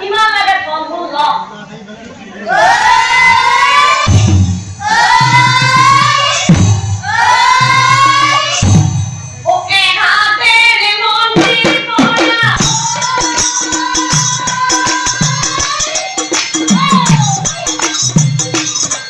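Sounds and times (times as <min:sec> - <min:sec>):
women singing together: 0:02.5 - 0:04.1, 0:04.8 - 0:08.6, 0:09.6 - 0:18.0
hand-clapping: 0:15.6 - 0:19.0.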